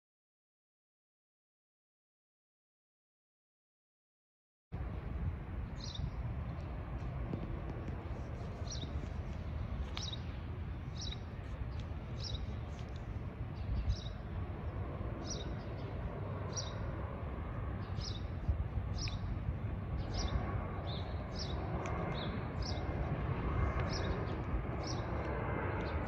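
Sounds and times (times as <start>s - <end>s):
low outdoor rumble: 4.8s - 26.0s
small bird chirping: 9.8s - 10.3s.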